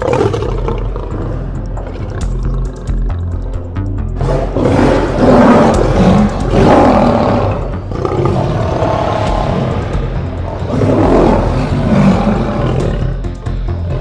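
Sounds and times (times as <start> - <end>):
big cat growling and roaring: 0.0 - 3.3, 4.2 - 14.0.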